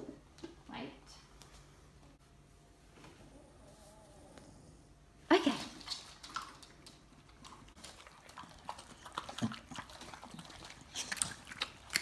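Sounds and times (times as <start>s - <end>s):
dogs chomping and crunching food: 5.8s - 12.0s.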